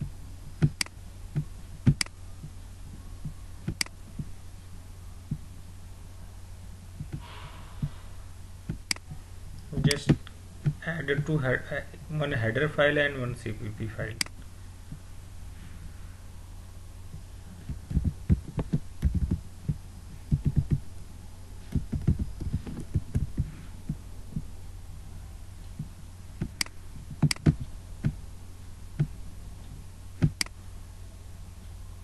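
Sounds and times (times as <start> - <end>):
steady low hum: 0.0 - 32.0
mouse clicks: 3.7 - 4.0, 8.8 - 9.1, 30.2 - 30.6.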